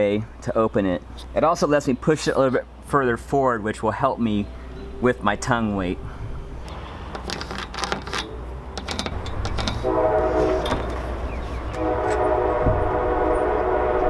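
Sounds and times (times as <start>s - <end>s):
train horn blasts: 9.8s - 14.0s.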